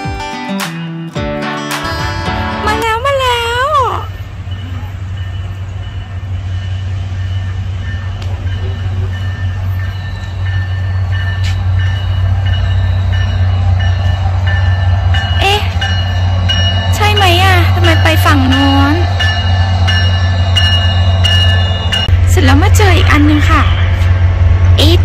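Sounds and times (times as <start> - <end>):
train rumbling: 1.9 - 25.0.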